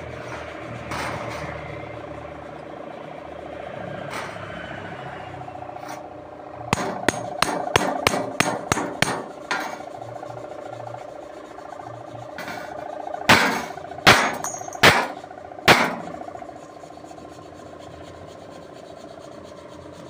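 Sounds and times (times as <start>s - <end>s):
steady hum: 0.0s - 20.0s
sharp metallic hammer knocks: 6.7s - 9.2s, 13.3s - 16.1s.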